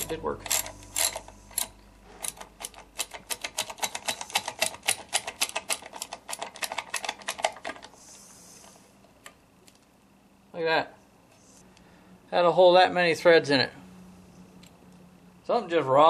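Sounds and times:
ratchet wrench clicking: 0.0s - 7.5s.

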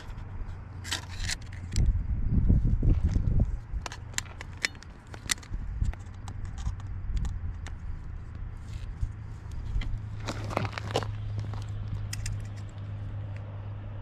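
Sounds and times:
low steady hum: 0.0s - 14.0s
light clicks and taps of tools: 3.8s - 9.9s, 11.6s - 13.5s.

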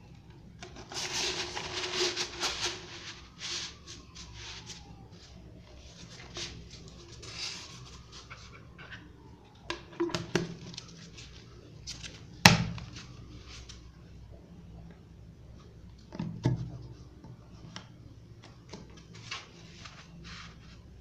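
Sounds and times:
cover and strap rustling: 0.6s - 4.9s.

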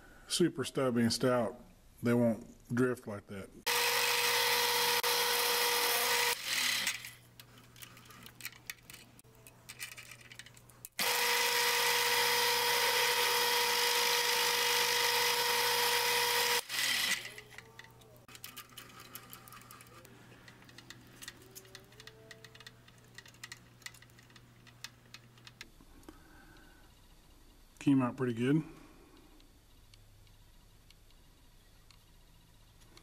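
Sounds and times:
drill bit cutting metal: 3.7s - 7.2s, 11.0s - 17.6s
mill spindle whining: 3.7s - 8.4s, 10.8s - 25.7s
light clicks and handling: 7.3s - 11.0s, 17.4s - 26.7s.

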